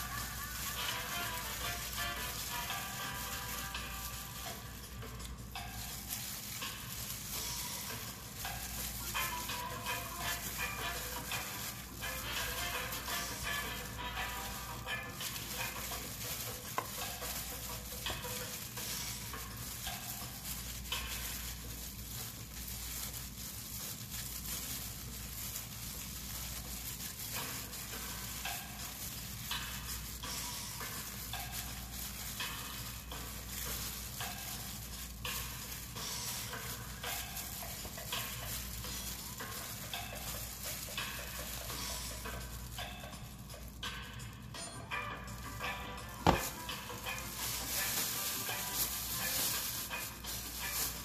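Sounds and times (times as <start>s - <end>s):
plastic gloves crinkling: 0.0s - 51.0s.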